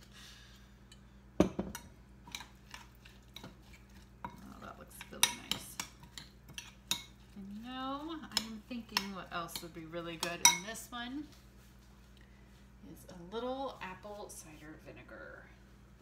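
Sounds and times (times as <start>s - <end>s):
spoon stirring in glass bowl: 1.7s - 10.8s.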